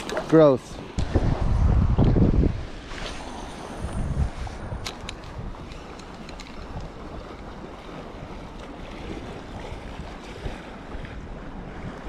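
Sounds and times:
wind buffeting microphone: 0:00.0 - 0:12.0
small waves lapping: 0:02.6 - 0:12.0.

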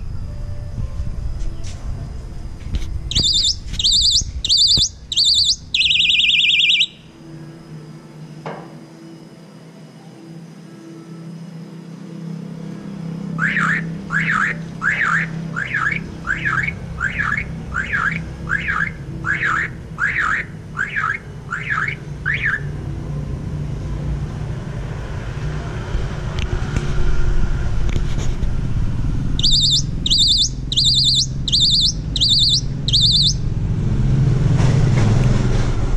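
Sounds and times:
traffic hum: 0:00.0 - 0:08.2, 0:12.4 - 0:35.9
myna bird calling: 0:03.1 - 0:07.1, 0:13.4 - 0:22.7, 0:29.4 - 0:33.5
vehicle engine: 0:12.6 - 0:35.9.

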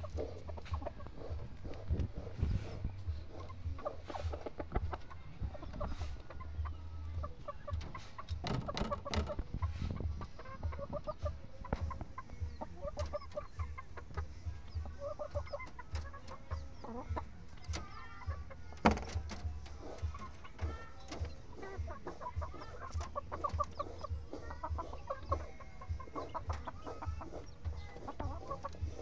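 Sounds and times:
chickens clucking: 0:00.0 - 0:29.0
sharp clicks and knocks: 0:07.8 - 0:09.5, 0:18.8 - 0:21.4.

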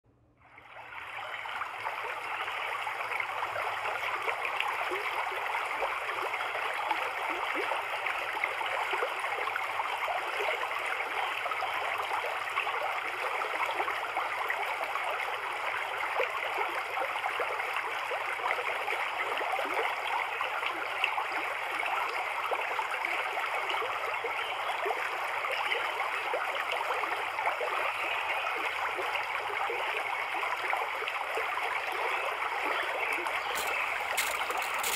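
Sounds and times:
running water splashing: 0:25.1 - 0:34.9.

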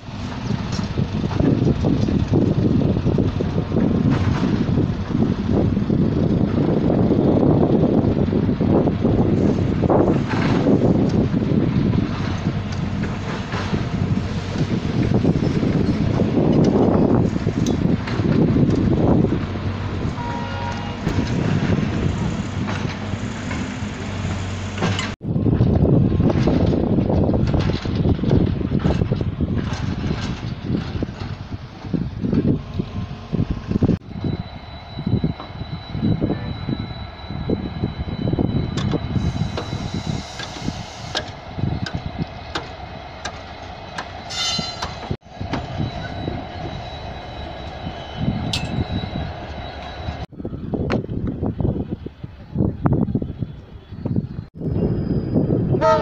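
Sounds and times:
crane engine running: 0:00.0 - 0:50.6
outdoor noise: 0:00.0 - 0:56.0
high squeal: 0:33.8 - 0:50.7, 0:53.4 - 0:56.0.

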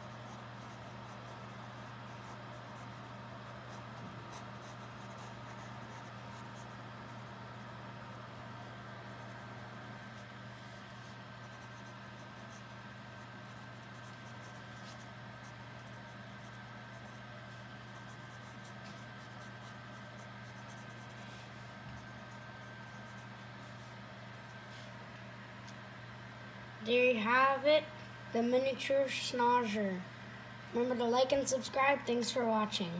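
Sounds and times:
pencil scratching on paper: 0:00.0 - 0:23.9
steady low hum: 0:00.0 - 0:32.9.

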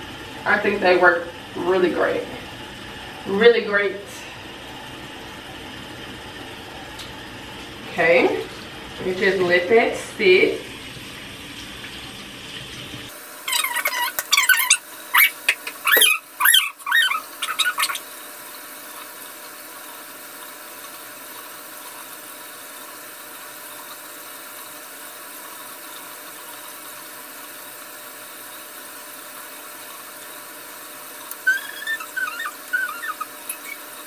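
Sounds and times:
woman's voice: 0:00.4 - 0:02.4, 0:03.2 - 0:04.4, 0:07.9 - 0:10.7.

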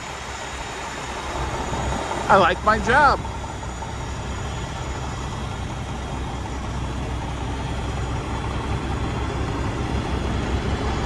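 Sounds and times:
truck diesel engine idling: 0:00.0 - 0:11.0.

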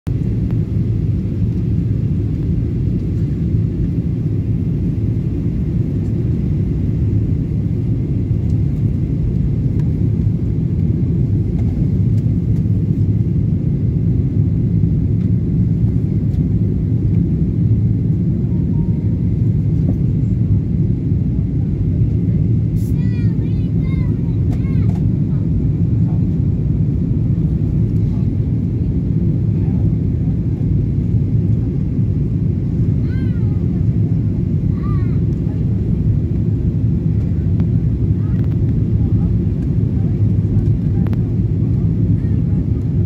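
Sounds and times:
jet airliner cabin rumble: 0:00.1 - 0:43.0.

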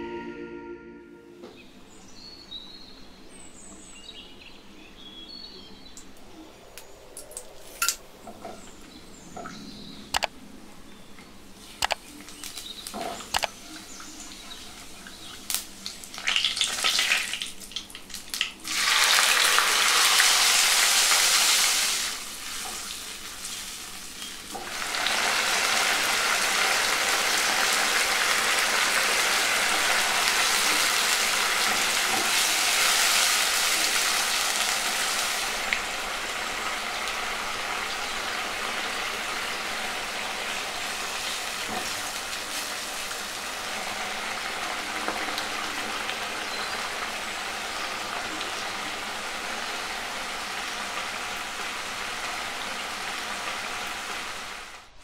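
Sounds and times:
spices sizzling in hot oil: 0:11.6 - 0:54.8.

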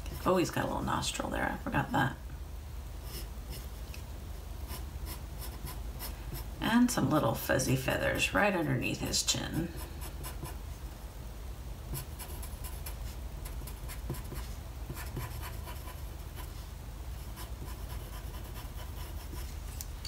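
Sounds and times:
pencil scratching on paper: 0:04.7 - 0:06.5, 0:09.5 - 0:10.6, 0:11.9 - 0:16.6, 0:17.2 - 0:19.6.

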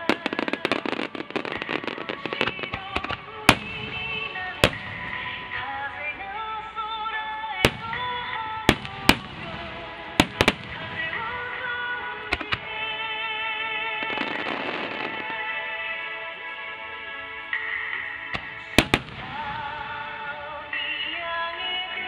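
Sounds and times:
firework booms: 0:00.0 - 0:06.6, 0:07.6 - 0:13.1, 0:18.4 - 0:20.9
firework crackling bangs: 0:00.0 - 0:15.9, 0:17.6 - 0:22.0
music: 0:00.0 - 0:22.0.

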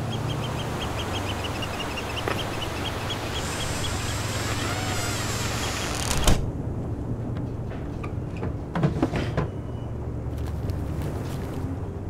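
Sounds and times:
surf washing: 0:00.0 - 0:06.2
bird chirping rapidly: 0:00.0 - 0:06.3.

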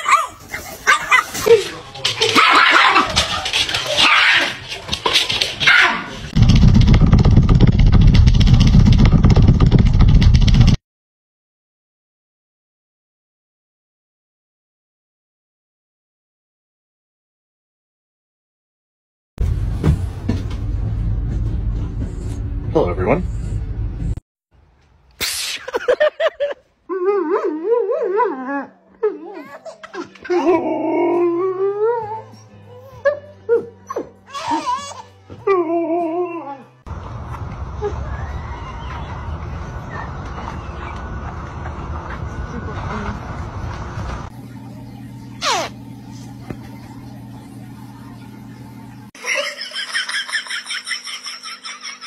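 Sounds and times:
small dog barking: 0:00.0 - 0:01.3, 0:02.4 - 0:03.2
low fluttering rumble: 0:06.3 - 0:10.8, 0:36.9 - 0:49.1
baby crying: 0:29.0 - 0:30.6, 0:34.3 - 0:35.2
baby giggling and squealing: 0:29.1 - 0:30.6, 0:33.9 - 0:35.1.

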